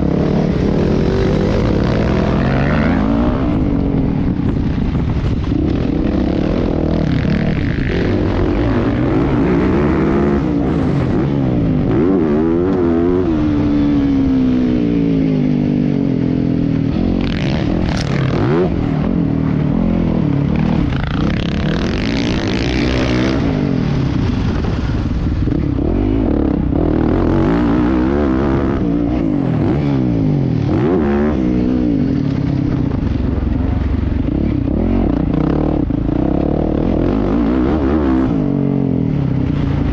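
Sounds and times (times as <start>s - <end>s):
motocross bike engine revving: 0.0s - 4.4s, 5.4s - 15.6s, 16.6s - 33.2s.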